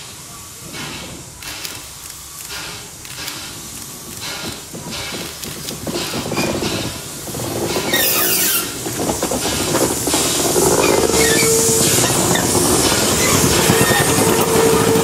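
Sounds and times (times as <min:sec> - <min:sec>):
steam hiss: 0:00.0 - 0:15.0
steam locomotive chuffing: 0:00.0 - 0:15.0
wheels on rails: 0:00.7 - 0:15.0
thin steady squeal: 0:10.8 - 0:12.5.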